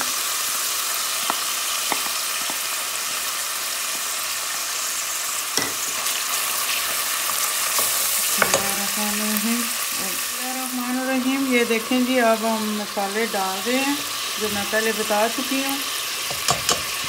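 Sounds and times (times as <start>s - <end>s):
food sizzling in oil: 0.0s - 17.0s
spoon knocking on pot: 1.2s - 2.6s, 5.6s - 5.9s, 8.4s - 8.7s, 16.3s - 17.0s.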